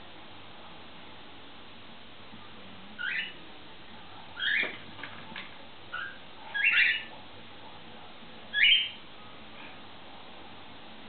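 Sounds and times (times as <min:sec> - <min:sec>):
cockatiels chirping: 0:03.0 - 0:03.4, 0:04.4 - 0:04.8, 0:05.9 - 0:07.1, 0:08.5 - 0:09.0.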